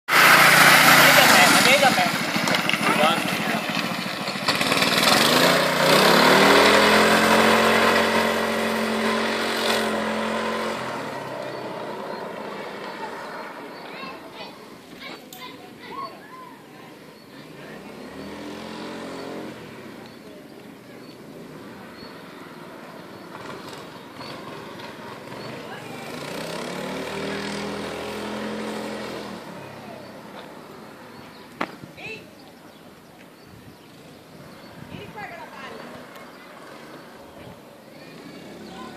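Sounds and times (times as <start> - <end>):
small engine running: 0.1 - 14.5
small engine revving: 0.1 - 16.0, 17.2 - 31.7, 33.9 - 38.9.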